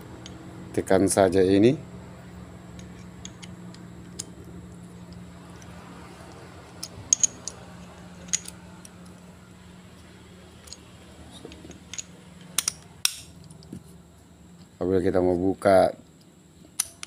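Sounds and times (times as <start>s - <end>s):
faint steady hum: 0.0s - 17.0s
socket clicking onto ratchet: 16.8s - 17.0s.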